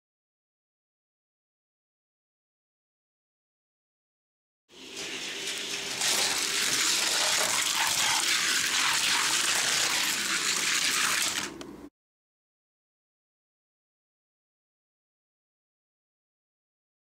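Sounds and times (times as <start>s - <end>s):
toy cars rolling down a track: 4.8s - 11.6s.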